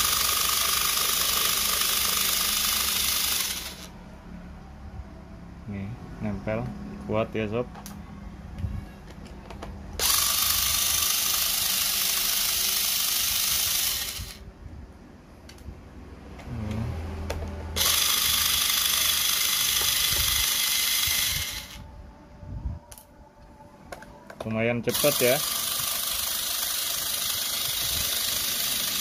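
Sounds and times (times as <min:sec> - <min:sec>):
electric screwdriver running: 0:00.0 - 0:03.9, 0:10.0 - 0:14.4, 0:17.8 - 0:21.8, 0:24.9 - 0:29.0.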